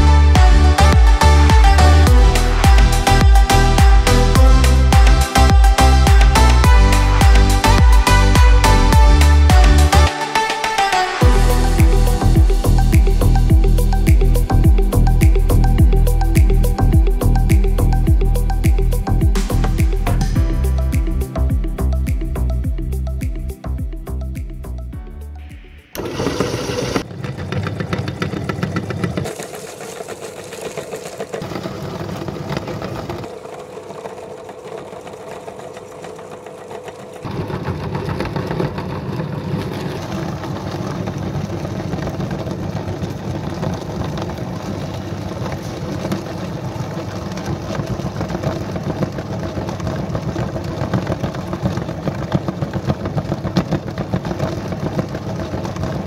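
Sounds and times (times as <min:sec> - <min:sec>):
electric meat grinder running: 0:26.0 - 0:56.0.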